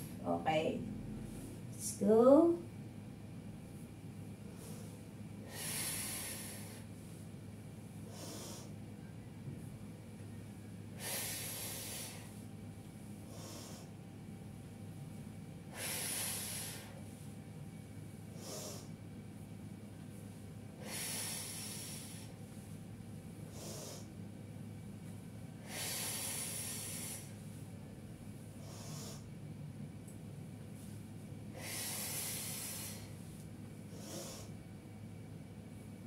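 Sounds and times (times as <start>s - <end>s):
steady low hum: 0.0s - 36.0s
woman breathing in and out: 4.4s - 9.1s, 10.4s - 14.2s, 15.6s - 17.4s, 18.2s - 19.5s, 20.3s - 22.8s, 23.4s - 24.3s, 25.6s - 27.8s, 28.4s - 29.4s, 30.8s - 34.8s.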